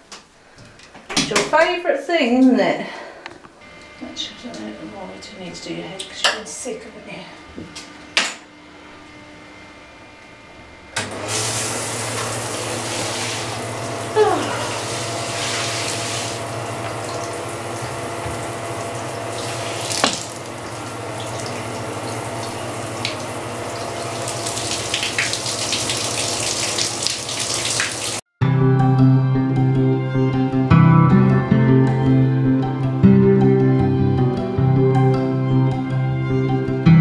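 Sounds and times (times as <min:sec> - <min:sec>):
shower spraying water: 0:11.2 - 0:28.2.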